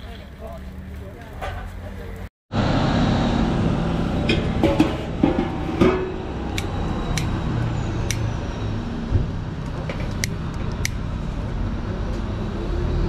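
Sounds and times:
metal pan clunking on burner: 0:04.3 - 0:06.2.

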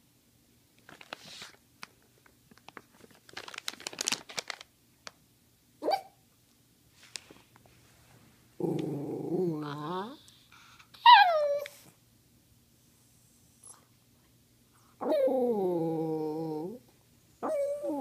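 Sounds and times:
crinkling and rustling: 0:00.8 - 0:05.2, 0:06.9 - 0:08.4
dog whining and howling: 0:11.0 - 0:11.9, 0:15.0 - 0:16.8, 0:17.4 - 0:18.0.

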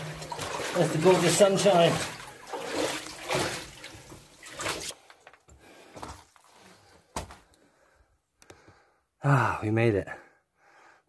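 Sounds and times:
footsteps splashing through water: 0:00.0 - 0:05.0.

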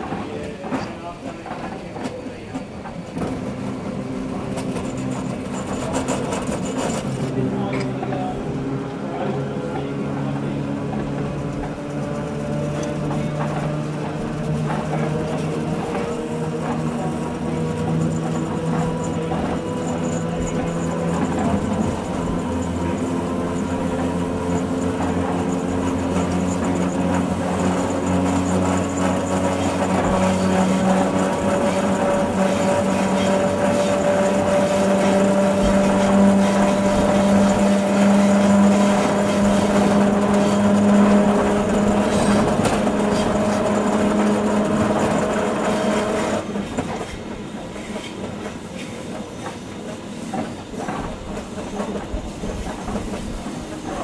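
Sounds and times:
train running noise: 0:00.0 - 0:54.0
traction motors whining: 0:02.0 - 0:54.0.

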